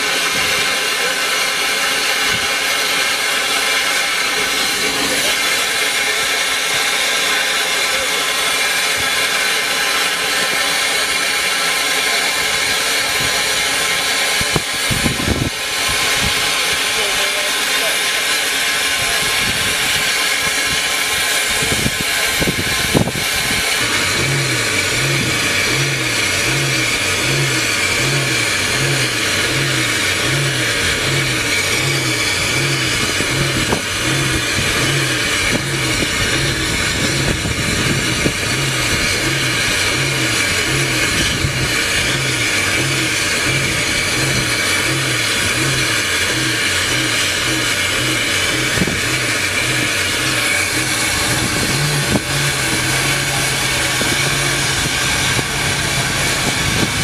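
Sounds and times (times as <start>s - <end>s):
steam hissing: 0.0s - 57.0s
low pulsing beat: 21.6s - 57.0s.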